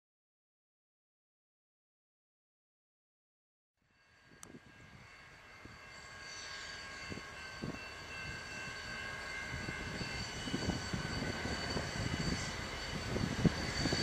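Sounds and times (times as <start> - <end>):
diesel locomotive drone: 3.8 - 14.0
high-pitched whine: 4.2 - 14.0.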